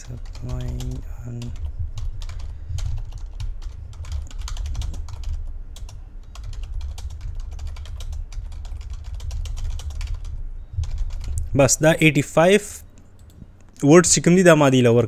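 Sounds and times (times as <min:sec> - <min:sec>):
keyboard typing clicks: 0:00.0 - 0:11.5.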